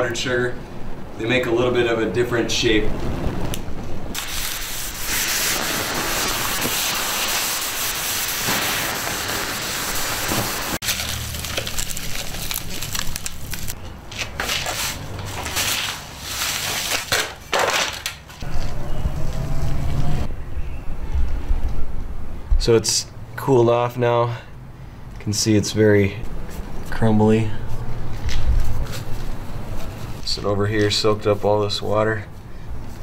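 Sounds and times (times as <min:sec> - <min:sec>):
water hissing on hot pans: 0:04.1 - 0:11.3.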